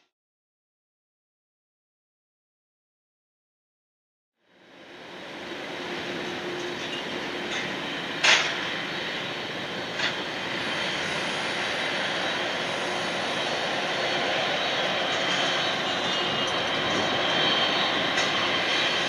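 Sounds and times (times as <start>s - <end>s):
jet engines rushing: 4.6s - 19.0s.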